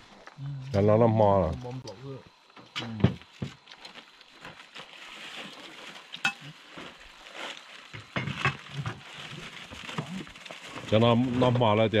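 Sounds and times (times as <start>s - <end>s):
food sizzling in a pan: 4.9s - 10.9s.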